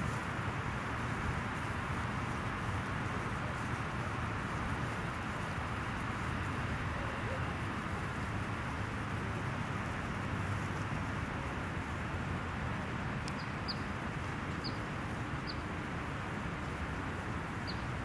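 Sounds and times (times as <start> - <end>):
outdoor rumble and hiss: 0.0 - 18.0
small bird chirping: 13.3 - 13.9, 14.6 - 14.8, 17.6 - 17.9.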